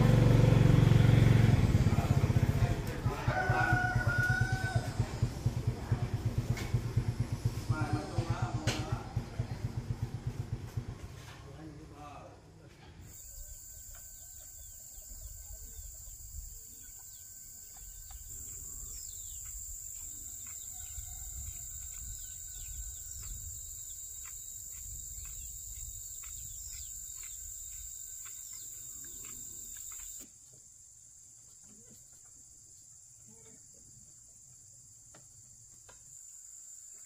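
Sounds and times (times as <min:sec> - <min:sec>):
quick chirps: 0:13.1 - 0:30.2
insects shrilling: 0:13.1 - 0:30.3.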